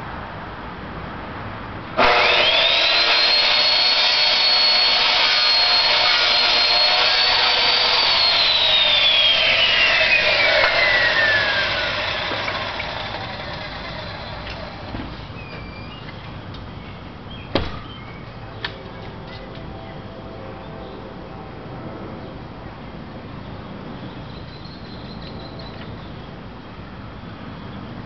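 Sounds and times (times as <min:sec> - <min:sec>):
high-speed motor whine: 0:02.0 - 0:15.2.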